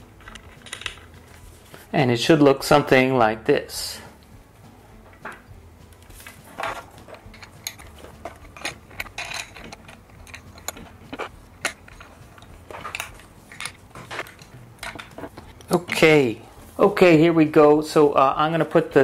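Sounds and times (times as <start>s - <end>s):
hands handling board and clamp: 5.0s - 16.2s
metal bracket parts knocking: 6.5s - 16.3s.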